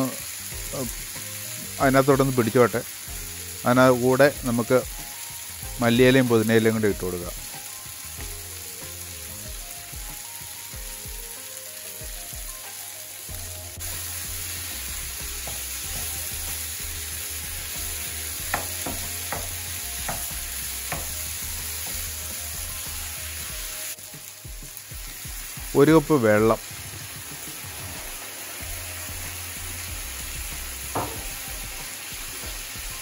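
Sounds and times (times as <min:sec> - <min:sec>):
food sizzling in a frying pan: 0:00.0 - 0:33.0
spatula knocking against pan: 0:18.5 - 0:21.2, 0:30.9 - 0:31.4.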